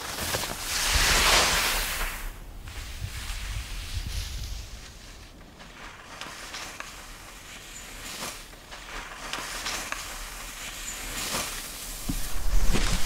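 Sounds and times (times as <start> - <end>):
skis scraping on snow: 0.0 - 13.0.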